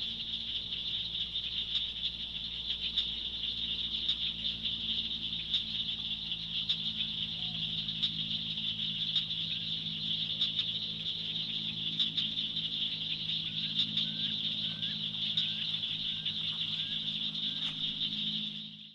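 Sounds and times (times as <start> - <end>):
insects buzzing: 0.0 - 18.9
low steady drone: 0.0 - 18.9
short upswept chirps: 0.0 - 18.9.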